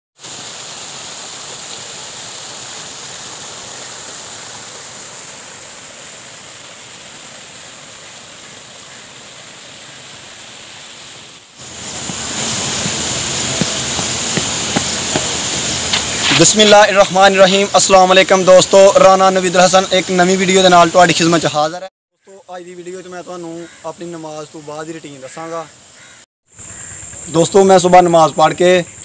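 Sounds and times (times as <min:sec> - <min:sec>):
water spilling into pool: 0:00.2 - 0:09.7, 0:11.5 - 0:21.5
steady outdoor hiss: 0:00.2 - 0:29.0.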